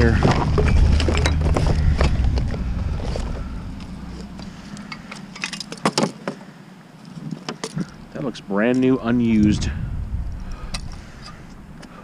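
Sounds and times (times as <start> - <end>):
garbage truck engine rumble: 0.0 - 5.8.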